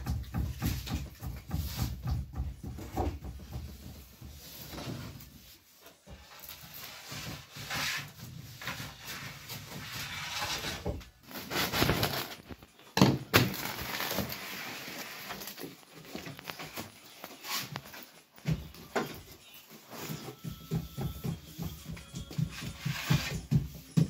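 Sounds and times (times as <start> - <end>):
crust scraping and crackling: 6.2 - 18.4.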